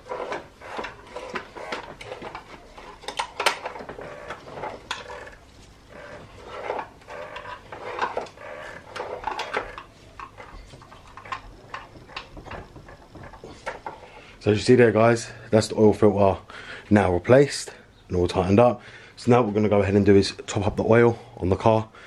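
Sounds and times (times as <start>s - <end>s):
tool clicking and scraping plastic cap: 0.0s - 5.4s, 6.0s - 14.0s.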